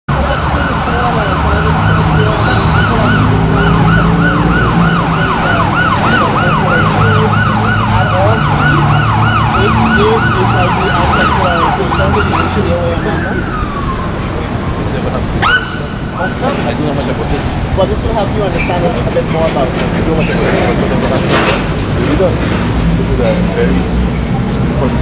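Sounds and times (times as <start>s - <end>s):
siren yelping: 0.1s - 16.7s.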